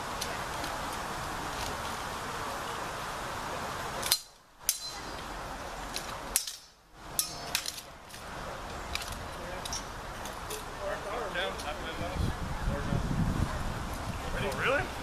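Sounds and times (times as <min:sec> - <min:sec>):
steel swords clashing: 0:04.0 - 0:05.2, 0:06.3 - 0:07.8.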